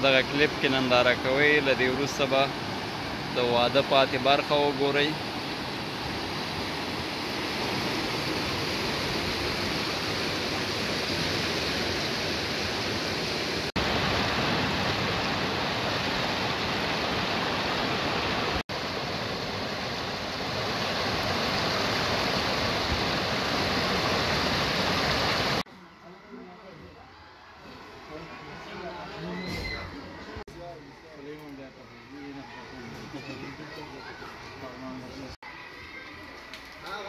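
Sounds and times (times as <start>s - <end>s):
river rushing over rapids: 0.1s - 25.6s.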